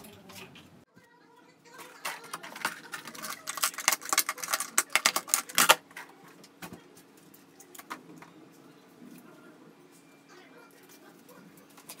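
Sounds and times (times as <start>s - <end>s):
small hard objects clattering: 1.8s - 6.1s.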